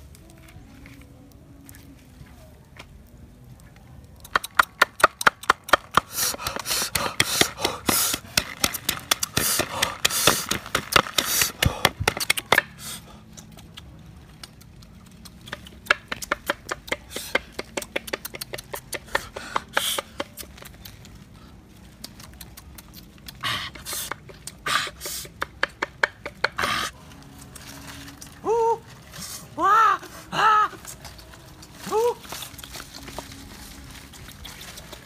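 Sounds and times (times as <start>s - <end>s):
pestle pounding in wooden bowl: 4.3s - 12.8s, 15.5s - 20.5s, 25.0s - 26.8s.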